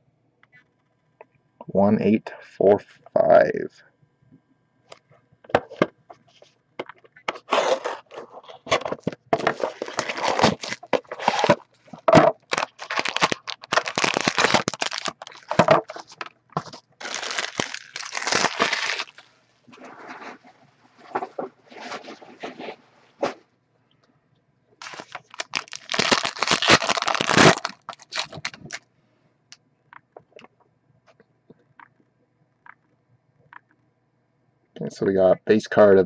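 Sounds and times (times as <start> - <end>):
plastic and cardboard crackling: 7.2 - 23.4, 24.8 - 28.8.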